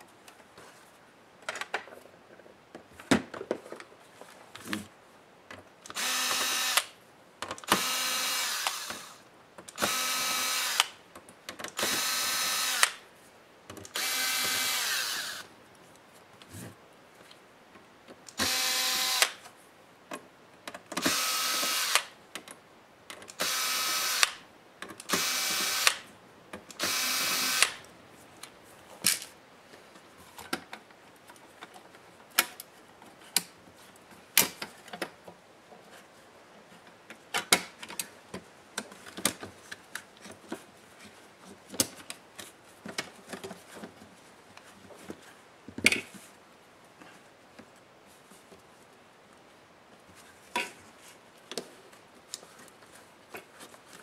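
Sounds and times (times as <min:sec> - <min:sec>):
cordless drill spinning: 0:06.0 - 0:06.9, 0:07.7 - 0:09.2, 0:09.8 - 0:11.0, 0:11.8 - 0:13.0, 0:13.9 - 0:15.5, 0:18.4 - 0:19.4, 0:21.0 - 0:22.1, 0:23.4 - 0:24.4, 0:25.1 - 0:26.0, 0:26.8 - 0:27.8.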